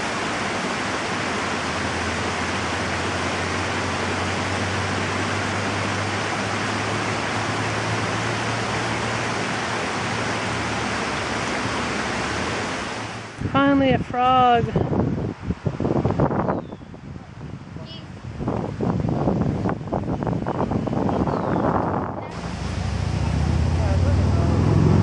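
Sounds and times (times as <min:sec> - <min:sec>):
water rushing over spillway: 0:00.0 - 0:16.4, 0:17.1 - 0:25.0.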